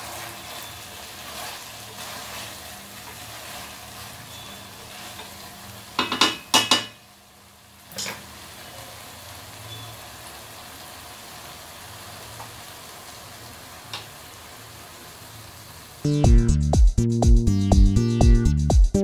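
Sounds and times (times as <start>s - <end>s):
curry sizzling in a pot: 0.0s - 16.1s
spatula knocking on metal pot: 6.0s - 7.0s.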